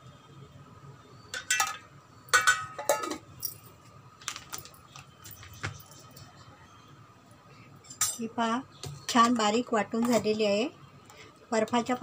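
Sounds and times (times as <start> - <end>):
ice cubes clinking on metal: 1.4 - 3.7.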